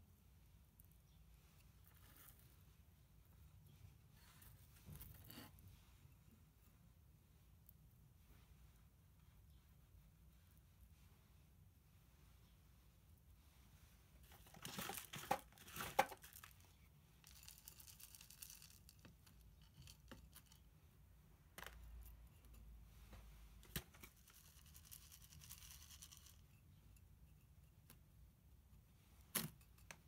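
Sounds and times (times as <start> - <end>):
granules poured from plastic scoop: 14.3 - 20.5, 24.0 - 26.4.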